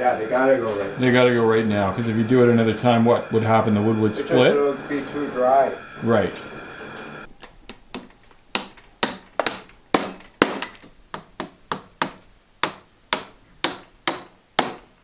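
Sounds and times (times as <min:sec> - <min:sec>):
hammer tapping tacks into wood: 0:07.4 - 0:14.9.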